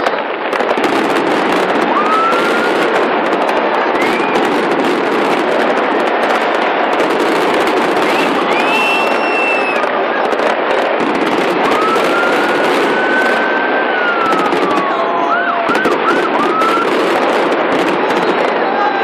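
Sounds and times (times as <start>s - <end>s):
fireworks crackling and popping: 0.0s - 19.0s
siren wailing: 11.6s - 17.2s.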